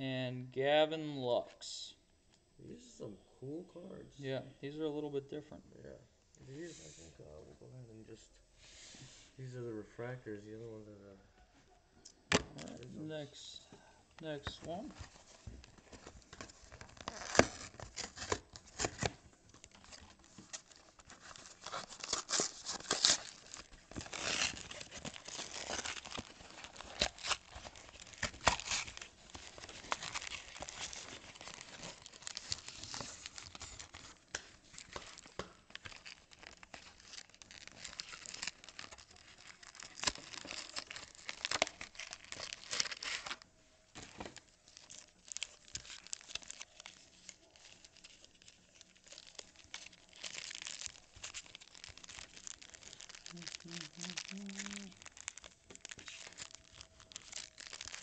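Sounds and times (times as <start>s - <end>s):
foil wrappers tearing and crinkling: 14.2s - 58.0s.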